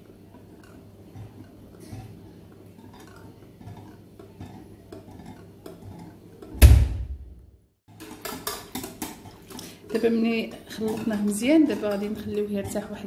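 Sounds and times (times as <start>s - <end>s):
loud knock: 6.6s - 7.4s.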